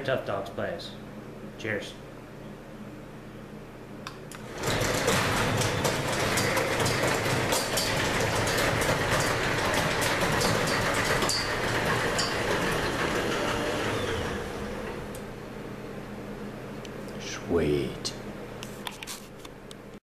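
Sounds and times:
garage door opener running: 0:04.3 - 0:15.6
garage door rattling down tracks: 0:04.4 - 0:15.2.

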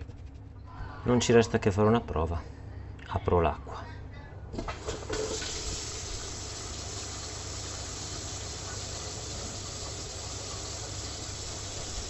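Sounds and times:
water rushing down a drain: 0:04.8 - 0:12.0.

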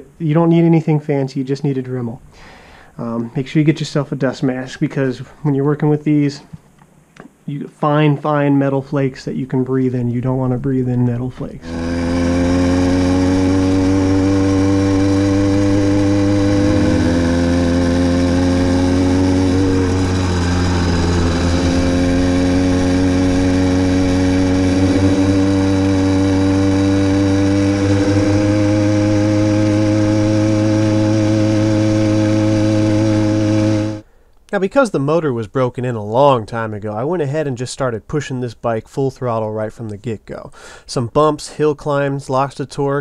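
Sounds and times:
small engine running hard: 0:11.6 - 0:34.0.

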